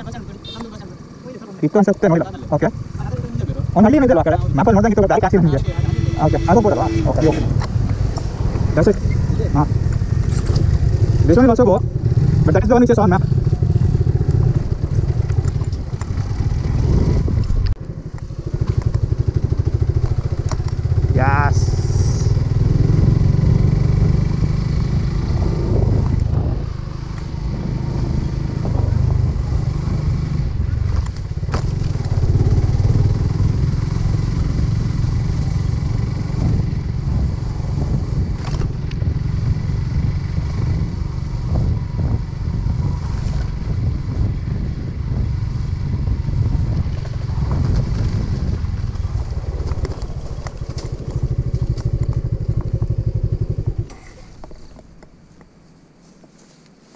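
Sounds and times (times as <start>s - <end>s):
motorcycle engine running: 0.0s - 54.9s
heavy low rumble: 1.8s - 22.6s.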